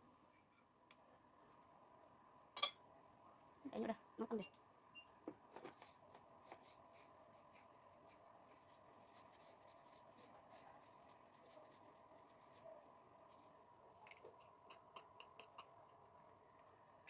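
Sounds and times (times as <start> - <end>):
faint steady hum: 0.0 - 17.0
gloved hands rustling food: 5.7 - 13.7.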